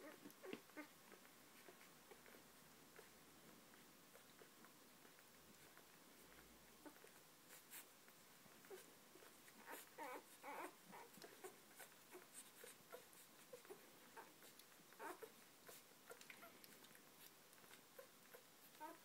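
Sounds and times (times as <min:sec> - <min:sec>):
puppies suckling: 0:00.0 - 0:19.0
puppy squeaks and whimpers: 0:08.6 - 0:19.0.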